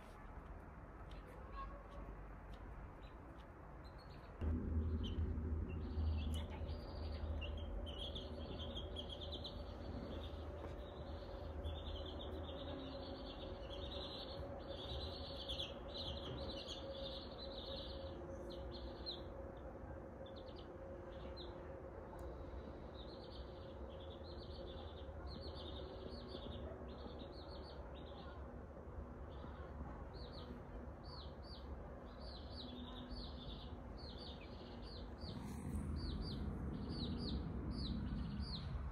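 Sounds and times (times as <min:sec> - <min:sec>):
baby chicks peeping: 0:03.8 - 0:18.0, 0:23.0 - 0:28.2, 0:32.2 - 0:38.9.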